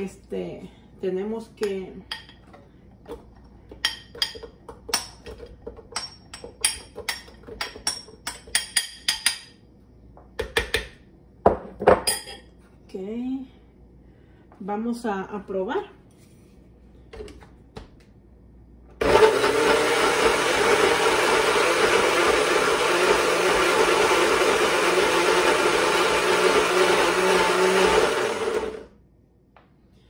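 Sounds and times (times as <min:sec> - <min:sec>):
blender running: 0:19.0 - 0:29.0.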